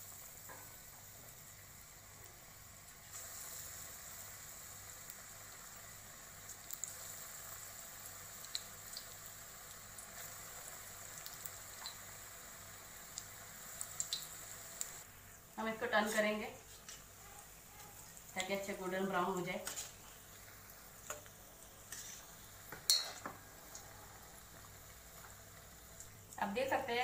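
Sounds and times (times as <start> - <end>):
deep-frying sizzle and bubbling: 0.0 - 27.0
oil popping and crackling: 6.4 - 7.7, 8.3 - 12.2, 13.1 - 15.0.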